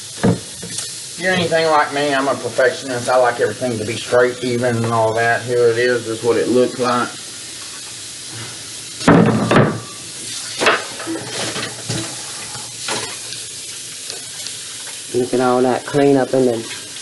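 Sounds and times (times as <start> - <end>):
steady hiss: 0.0 - 17.0
dishes clattering in metal sink: 9.0 - 10.0, 10.6 - 12.2.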